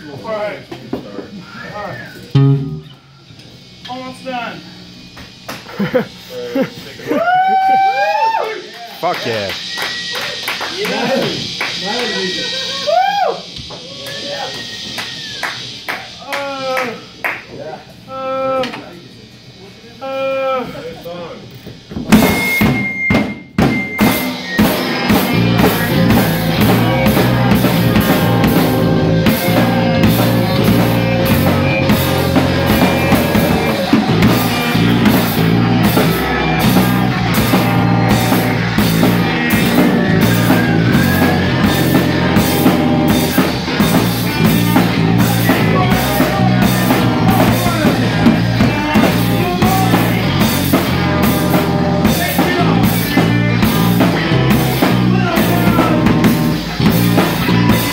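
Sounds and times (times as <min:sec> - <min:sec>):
live rock band playing: 0:02.3 - 0:03.1, 0:22.1 - 0:57.9
drum kit beat: 0:02.3 - 0:03.8, 0:09.1 - 0:16.2, 0:21.8 - 0:57.9.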